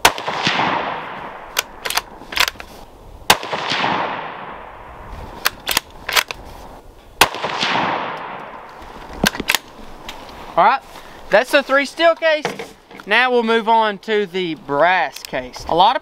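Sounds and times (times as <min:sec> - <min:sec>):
rifle shots with echo: 0:00.0 - 0:02.1, 0:03.3 - 0:04.8, 0:07.2 - 0:08.7
rifle bolt metallic clicks: 0:01.5 - 0:02.7, 0:05.4 - 0:06.4, 0:09.2 - 0:09.7.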